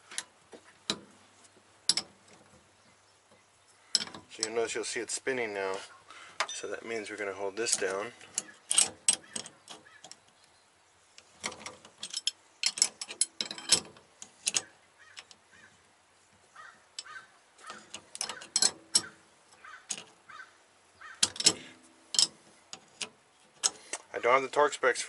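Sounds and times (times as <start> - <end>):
short creaks: 0.0 - 24.6
wrench clicking on metal: 11.4 - 15.4, 17.0 - 20.1, 21.2 - 24.0.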